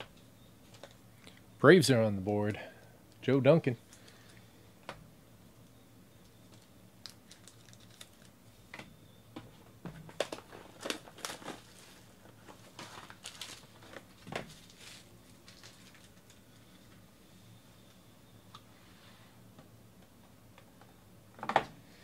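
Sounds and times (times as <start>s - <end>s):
plastic wrap crinkling: 6.6s - 8.4s, 10.1s - 17.0s.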